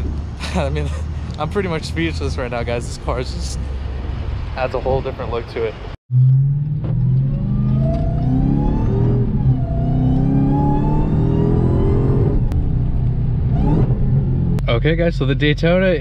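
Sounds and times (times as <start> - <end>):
car engine accelerating: 6.1 - 14.7.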